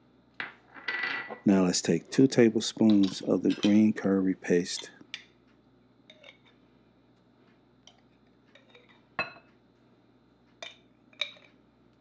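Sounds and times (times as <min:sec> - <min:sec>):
metal spoon clinking on glass: 0:02.9 - 0:03.8.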